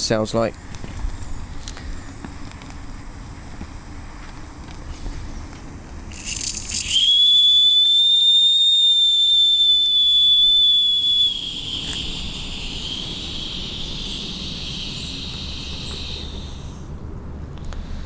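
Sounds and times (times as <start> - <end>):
escaping steam hissing: 6.3 - 17.0
high-pitched steam whistle: 6.8 - 16.9.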